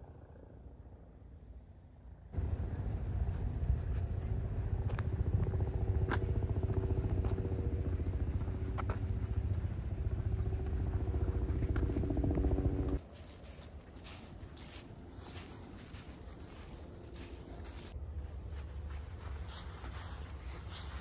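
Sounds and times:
motor rumbling and humming: 2.3s - 19.1s.

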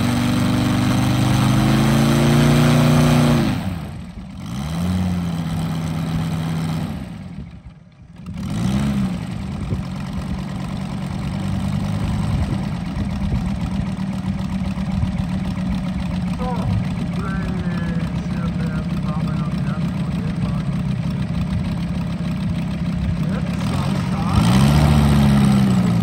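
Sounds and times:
model airplane engine running: 0.0s - 26.0s.

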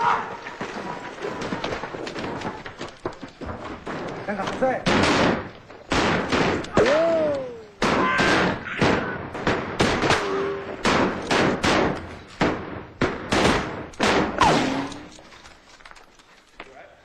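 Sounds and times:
rifle gunshots: 4.8s - 7.1s, 7.8s - 15.2s.

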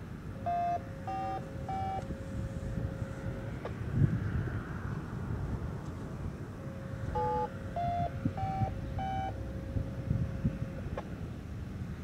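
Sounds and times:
faint steady tone: 0.0s - 12.0s
wind buffeting microphone: 0.9s - 12.0s.

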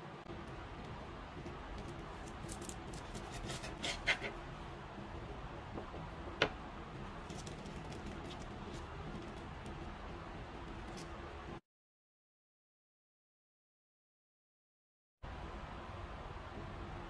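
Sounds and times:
knife cutting crisp tortilla: 1.8s - 4.4s.

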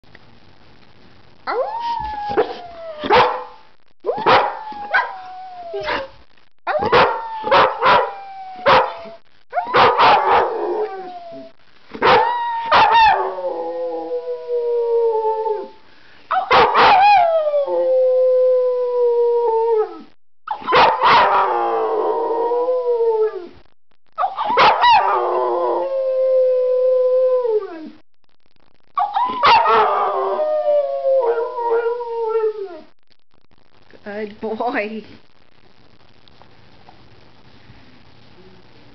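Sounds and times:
dog yipping and howling: 1.5s - 3.4s, 4.1s - 6.0s, 6.7s - 13.4s, 16.3s - 18.3s, 19.5s - 23.5s, 24.2s - 27.9s, 29.0s - 32.8s.

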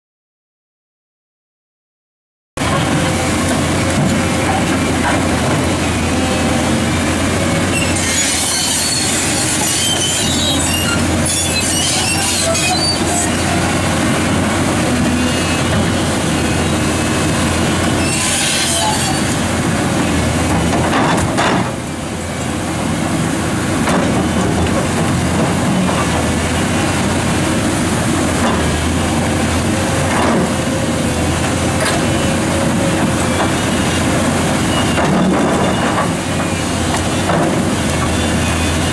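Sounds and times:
excavator engine and hydraulics: 2.6s - 38.9s
high squealing and scraping: 7.4s - 14.0s, 17.8s - 19.6s.

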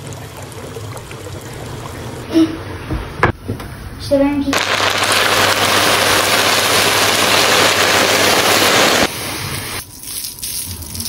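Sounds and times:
pastry sizzling under poured syrup: 4.6s - 10.8s.

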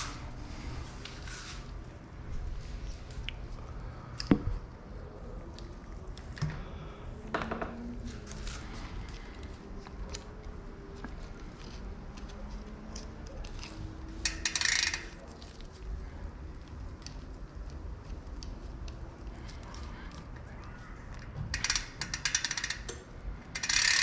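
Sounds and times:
bike chain and derailleur rattling: 13.4s - 15.8s, 21.5s - 24.0s.

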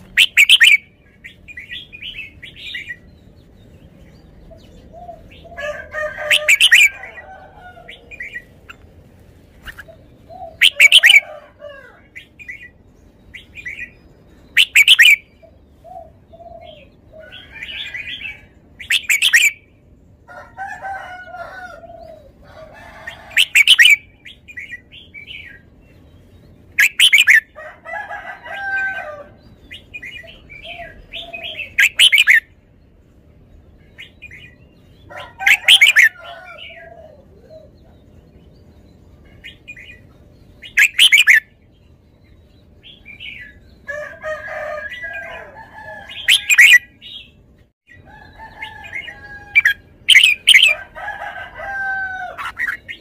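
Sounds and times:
bird call: 0.0s - 3.1s, 9.6s - 12.8s, 14.5s - 19.6s
bird chirping: 0.0s - 53.0s.

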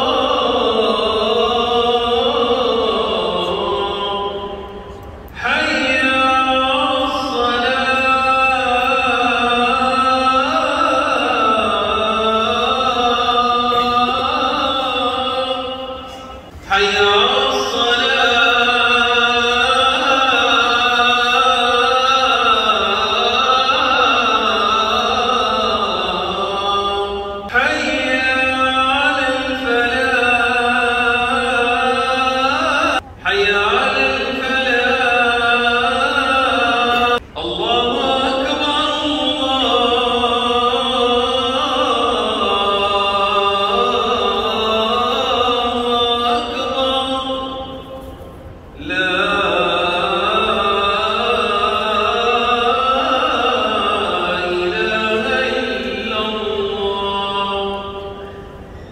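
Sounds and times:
solo voice chanting: 0.0s - 48.2s.

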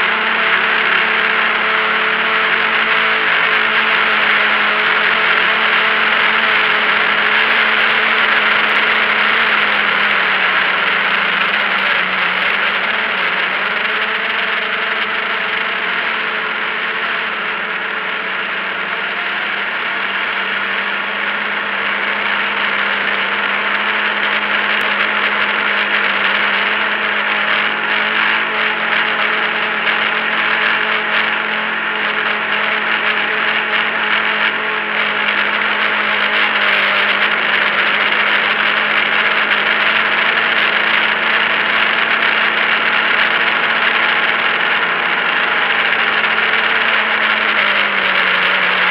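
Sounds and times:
drone propellers whirring: 0.0s - 48.9s.

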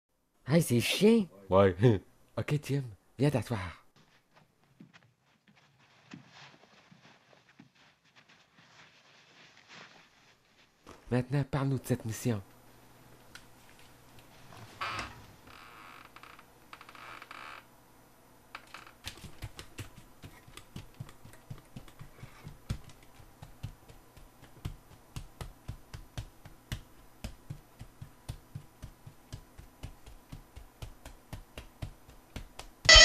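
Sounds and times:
soft hiss: 5.3s - 18.7s.

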